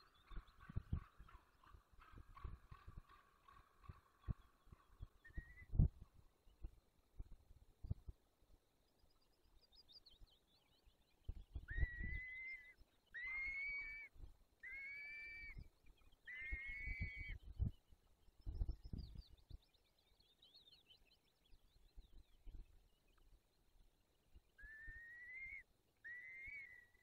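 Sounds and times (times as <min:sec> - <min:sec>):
falcon calls: 0:00.2 - 0:05.7, 0:11.6 - 0:15.6, 0:16.2 - 0:17.4, 0:24.6 - 0:27.0.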